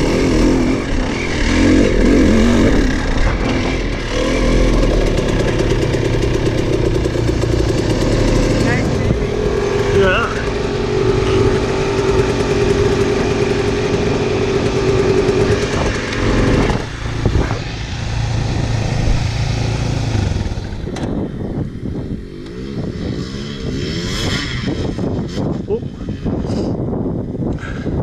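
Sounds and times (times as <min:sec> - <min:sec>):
trail bike pulling away: 0:00.0 - 0:21.3
dirt bike engine running: 0:00.0 - 0:26.4
rising engine note: 0:00.2 - 0:21.6.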